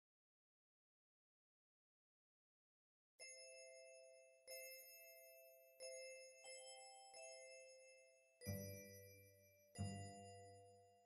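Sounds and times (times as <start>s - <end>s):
soft bell-like chime notes: 3.2s - 11.0s.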